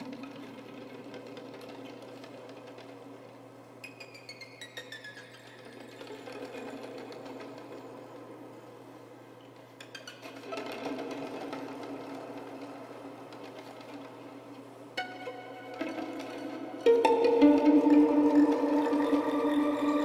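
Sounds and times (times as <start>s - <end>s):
music with fast ticking beat: 16.8s - 20.0s.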